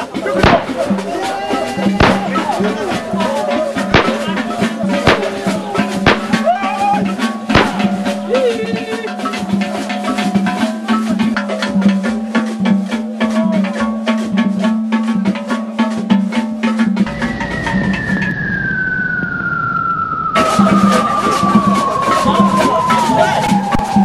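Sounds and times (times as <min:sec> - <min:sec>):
fast drumming and percussion music: 0:00.0 - 0:18.3, 0:20.4 - 0:24.0
loud sharp drum hits: 0:00.2 - 0:08.3
low hum: 0:17.1 - 0:22.0.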